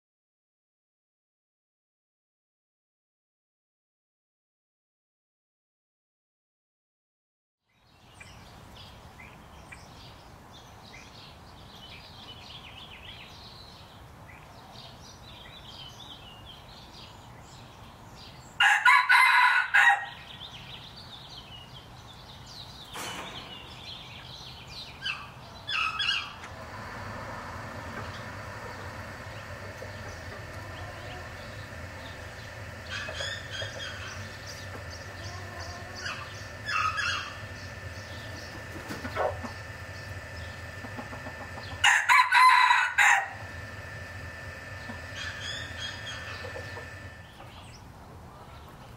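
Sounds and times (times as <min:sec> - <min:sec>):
small birds chirping: 0:07.7 - 0:18.6, 0:20.1 - 0:41.9, 0:43.4 - 0:48.9
rooster crowing: 0:18.6 - 0:20.2, 0:28.5 - 0:37.5, 0:41.0 - 0:43.9.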